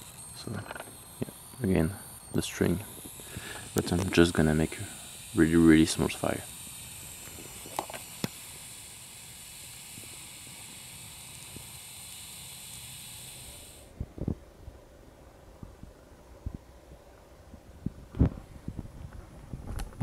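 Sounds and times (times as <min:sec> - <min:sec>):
stick fire hissing: 0:00.0 - 0:13.9.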